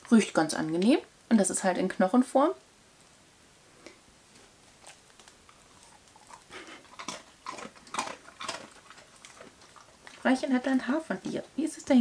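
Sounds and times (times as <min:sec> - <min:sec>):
dog crunching a biscuit: 0:04.3 - 0:11.3.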